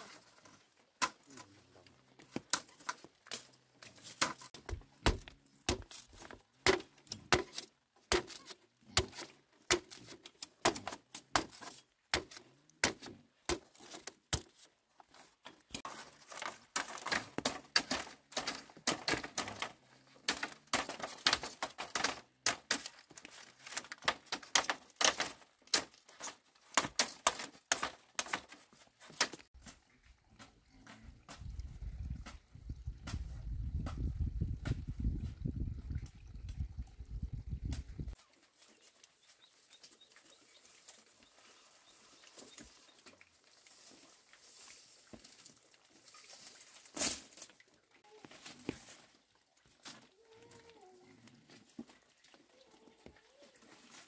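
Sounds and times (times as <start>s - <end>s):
bamboo splitting with machete: 2.3s - 14.7s, 15.8s - 29.5s.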